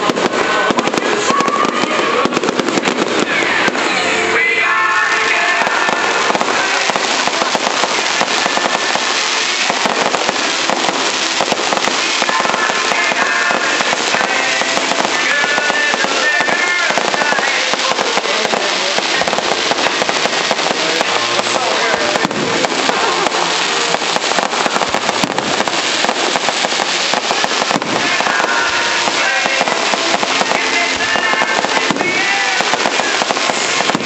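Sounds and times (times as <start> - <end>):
fireworks crackling and popping: 0.0 - 34.0.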